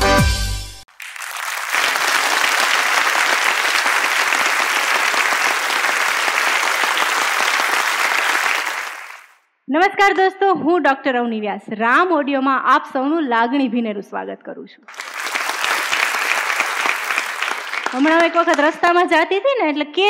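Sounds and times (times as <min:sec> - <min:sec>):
audience applauding: 0:00.9 - 0:09.4, 0:14.9 - 0:18.9.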